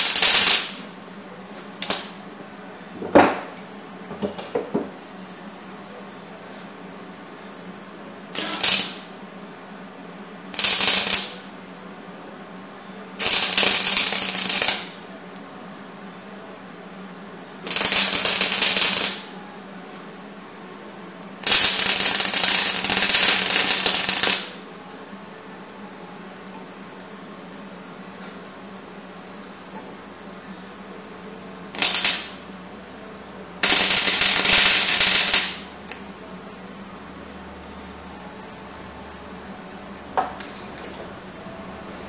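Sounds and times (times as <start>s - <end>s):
crackling welding arc: 0.0s - 1.0s, 1.8s - 2.2s, 8.3s - 9.2s, 10.5s - 11.8s, 13.2s - 15.1s, 17.6s - 19.4s, 21.3s - 24.7s, 31.7s - 32.5s, 33.6s - 36.1s
steady low hum: 0.0s - 42.0s.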